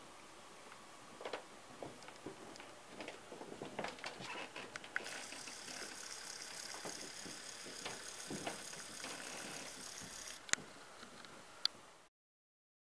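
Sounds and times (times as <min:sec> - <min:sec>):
model train motor whir: 0:04.8 - 0:10.6.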